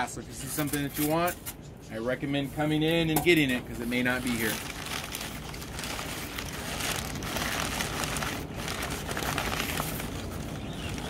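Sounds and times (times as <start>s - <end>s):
crumpled newspaper rustling: 3.3s - 11.0s.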